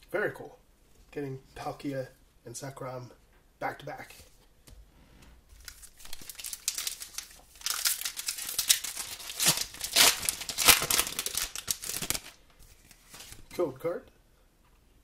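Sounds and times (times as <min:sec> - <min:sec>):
foil wrapper tearing: 0:05.6 - 0:12.4
foil wrapper crinkling: 0:05.6 - 0:13.4.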